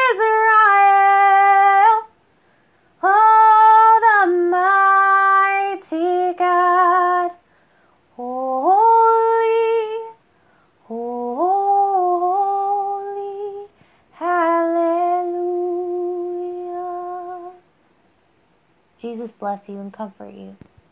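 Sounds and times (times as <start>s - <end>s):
woman singing unaccompanied: 0.0s - 2.2s, 3.0s - 7.4s, 8.1s - 10.2s, 10.8s - 17.7s.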